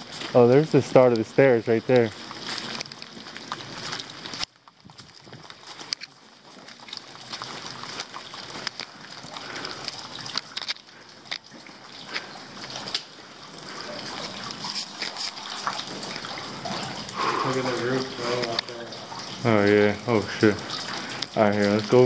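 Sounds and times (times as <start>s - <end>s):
water dripping and splashing: 0.0s - 22.0s
heavy rain: 5.2s - 22.0s.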